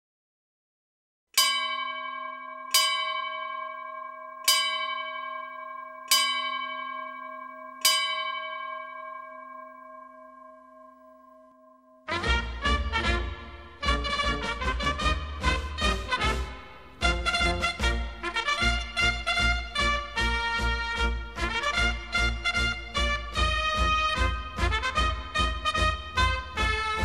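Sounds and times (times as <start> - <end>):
bell ringing: 1.4 - 12.3.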